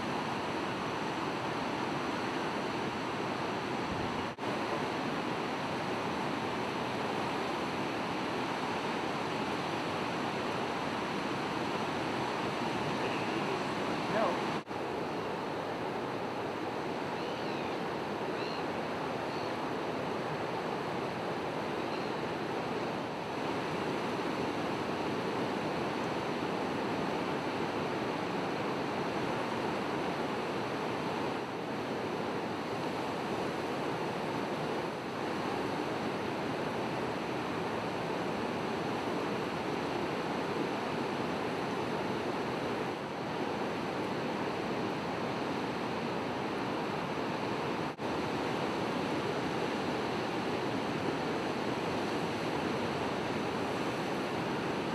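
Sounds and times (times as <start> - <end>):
surf breaking on rough water: 0.0 - 54.9.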